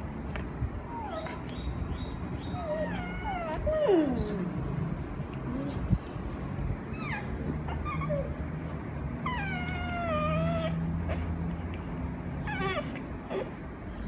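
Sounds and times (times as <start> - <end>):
puppy whining squeals: 0.9 - 1.7, 2.4 - 5.9, 6.9 - 11.4, 12.4 - 13.6.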